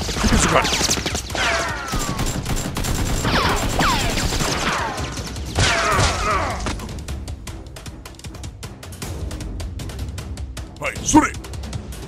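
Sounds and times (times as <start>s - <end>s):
blaster gunfire: 0.2s - 6.2s.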